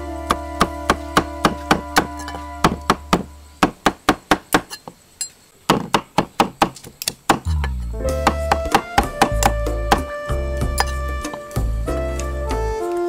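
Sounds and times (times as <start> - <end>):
background music: 0.0 - 3.7, 7.5 - 13.0
cleaver chopping on wooden block: 5.7 - 7.6.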